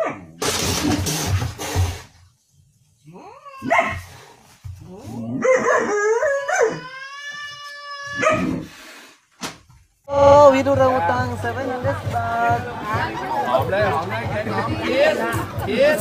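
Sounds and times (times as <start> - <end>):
dog barking and howling: 3.5 - 4.1, 5.3 - 7.1, 8.0 - 8.6.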